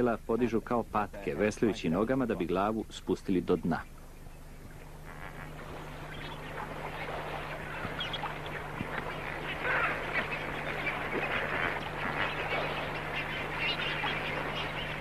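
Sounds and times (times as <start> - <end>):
flamingos calling: 3.6 - 15.0.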